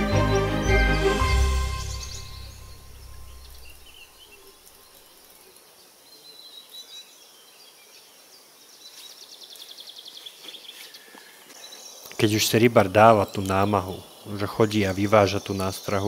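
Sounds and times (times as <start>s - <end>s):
background music: 0.0s - 3.9s
rapid high-pitched pulsing trill: 0.0s - 3.9s
bird calls: 0.0s - 7.2s, 8.8s - 16.0s.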